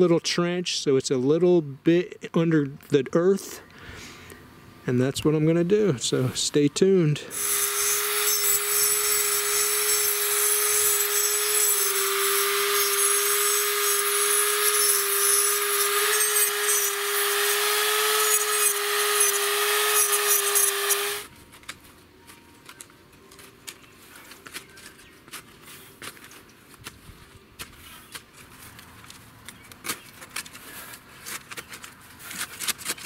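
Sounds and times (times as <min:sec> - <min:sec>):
angle grinder cutting wire: 0:07.3 - 0:21.3
shovel digging soil: 0:27.6 - 0:33.0.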